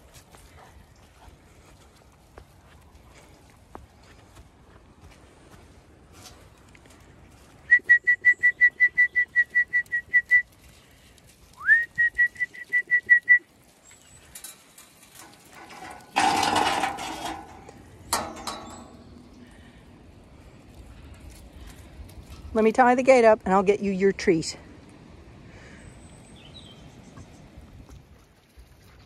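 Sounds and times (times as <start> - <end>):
person whistling short high notes: 11.6 - 13.4
metal gate rattling and clanking: 14.2 - 19.7.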